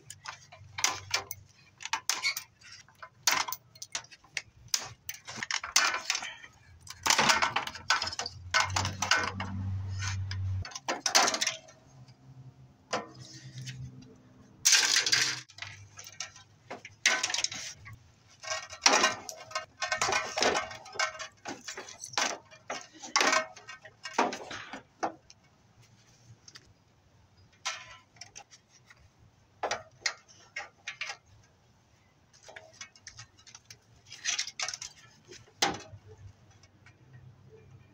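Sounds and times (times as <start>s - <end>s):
small metal parts clattering: 0.0s - 12.1s, 14.6s - 25.3s, 32.3s - 37.3s.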